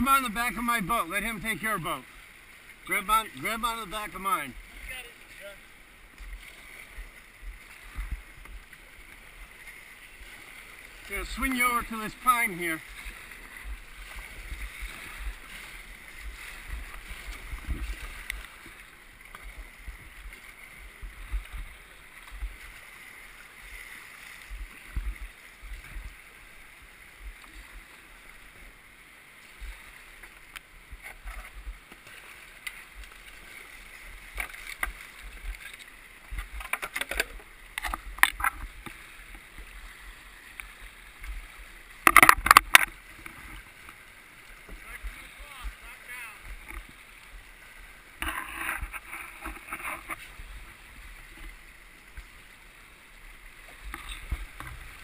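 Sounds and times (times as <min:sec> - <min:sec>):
river water rushing and splashing: 0:00.0 - 0:55.0
low thumps on camera: 0:24.5 - 0:26.2
kayak knocking into branches: 0:42.0 - 0:43.0.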